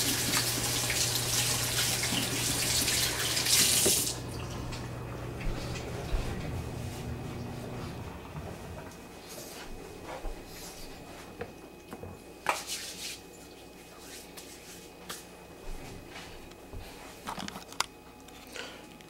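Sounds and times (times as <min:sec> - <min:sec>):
hands being dried rustling: 0:12.4 - 0:15.3.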